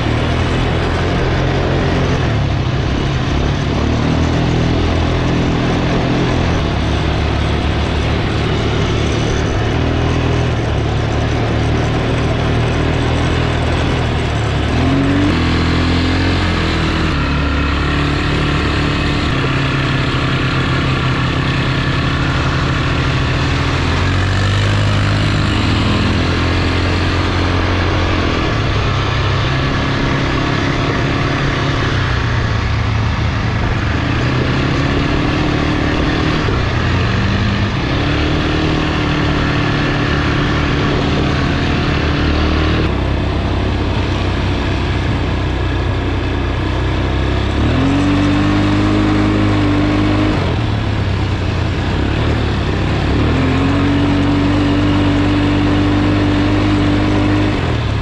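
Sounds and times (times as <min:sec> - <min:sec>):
constant noisy rush: 0:00.0 - 0:58.0
quad bike engine revving: 0:00.0 - 0:58.0.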